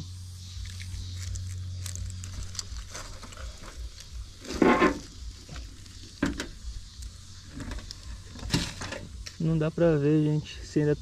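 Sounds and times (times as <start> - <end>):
well cover scratching and rustling: 0.6 - 9.2
loud scrape: 4.4 - 5.2.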